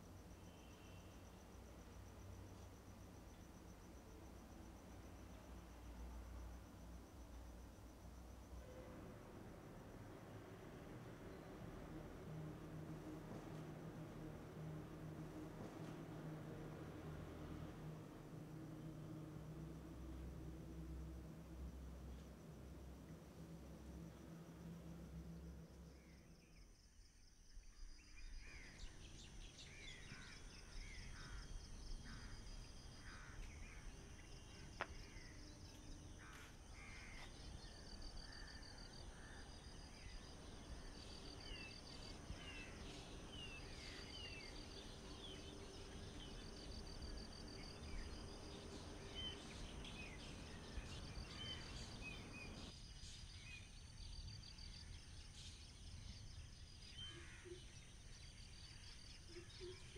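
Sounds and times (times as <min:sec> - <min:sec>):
low steady background hum: 0:00.0 - 0:26.9.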